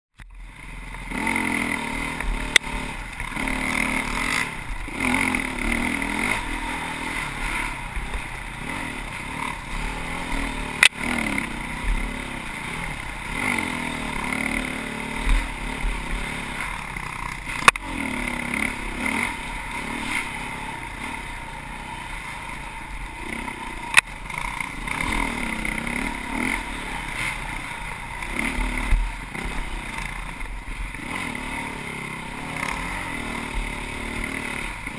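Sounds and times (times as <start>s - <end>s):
dirt bike engine revving: 0.2s - 34.9s.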